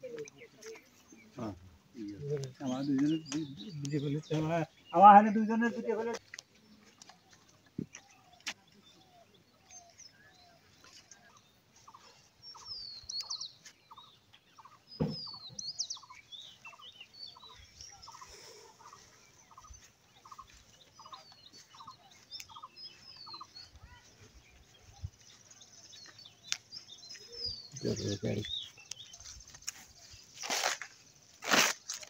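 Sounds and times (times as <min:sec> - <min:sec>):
birds chirping: 0:00.0 - 0:32.0
thump: 0:15.0 - 0:15.4.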